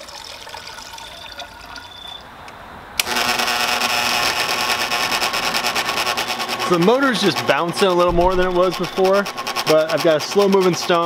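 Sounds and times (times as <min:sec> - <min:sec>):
water pouring into trough: 0:00.0 - 0:02.2
motor running with fast pulsing: 0:03.0 - 0:11.0.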